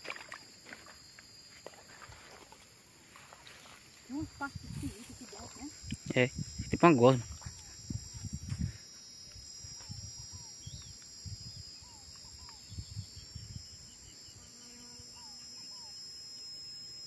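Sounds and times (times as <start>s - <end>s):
insects trilling: 0.0s - 17.0s.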